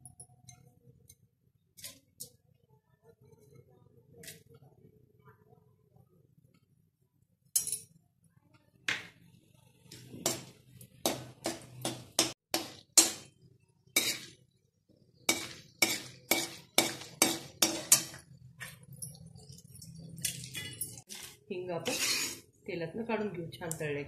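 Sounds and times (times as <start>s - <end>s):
oil frying: 8.9s - 22.5s
metal spoon scraping metal pan: 13.9s - 14.4s, 15.2s - 22.6s.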